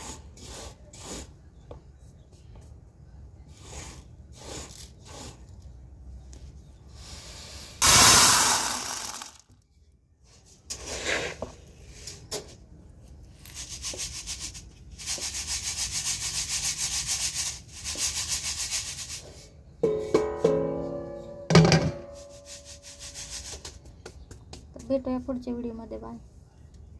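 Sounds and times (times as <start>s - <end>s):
grain hissing in sieve: 3.5s - 5.5s, 7.0s - 9.4s, 13.4s - 19.5s
grain pouring from bowl: 7.8s - 9.4s.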